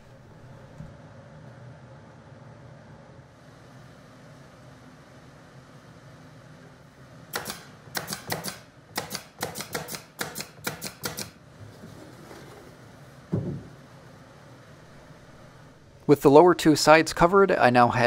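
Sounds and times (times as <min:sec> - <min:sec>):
pin nailer firing: 0:07.3 - 0:11.4.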